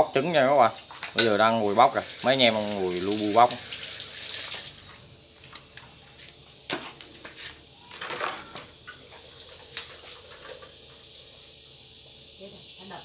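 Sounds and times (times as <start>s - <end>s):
faint steady hiss: 0.0s - 6.8s.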